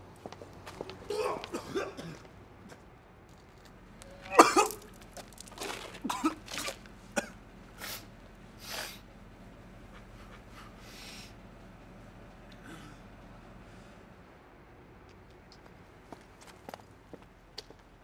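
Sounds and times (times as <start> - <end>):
man coughing hard: 1.1 - 2.2, 4.3 - 4.9, 6.0 - 6.4, 12.6 - 13.0
throat clearing: 1.1 - 2.3, 4.2 - 4.9, 6.0 - 6.4, 12.6 - 13.1.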